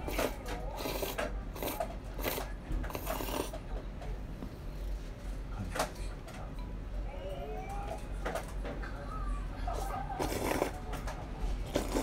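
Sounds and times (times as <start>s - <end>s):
person slurping noodles: 0.1s - 3.5s, 10.2s - 10.8s, 11.7s - 12.0s.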